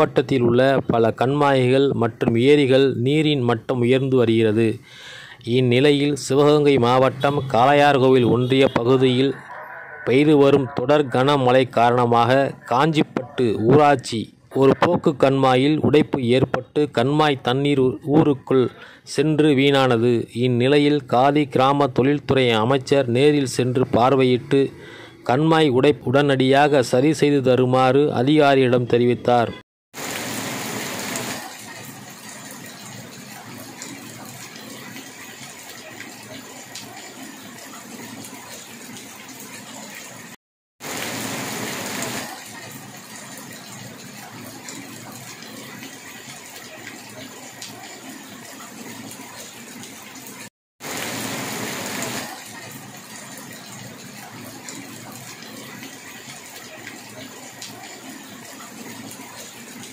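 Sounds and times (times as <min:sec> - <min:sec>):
flowing water rushing: 0:30.0 - 0:59.9.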